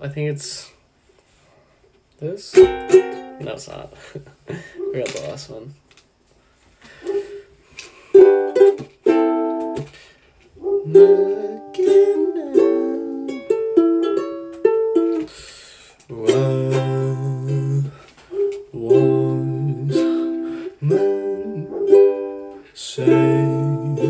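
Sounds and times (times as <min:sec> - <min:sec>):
ukulele strummed chords: 0:02.5 - 0:03.8, 0:08.2 - 0:10.0, 0:10.7 - 0:15.3, 0:16.1 - 0:18.0, 0:18.7 - 0:24.0.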